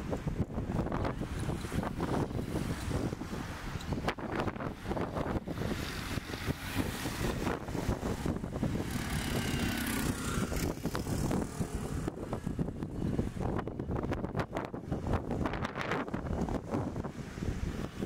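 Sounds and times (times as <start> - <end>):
wind rumbling on microphone: 0.0 - 18.0
motor vehicle passing: 1.0 - 13.9.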